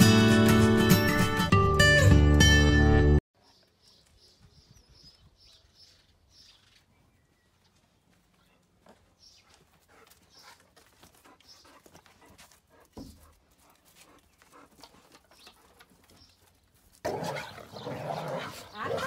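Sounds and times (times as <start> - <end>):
dog panting: 9.4 - 16.4.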